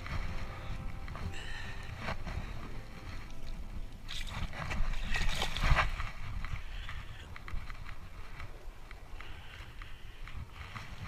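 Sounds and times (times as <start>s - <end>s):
wind on microphone: 0.0s - 11.0s
fish splashing in water: 4.0s - 6.0s.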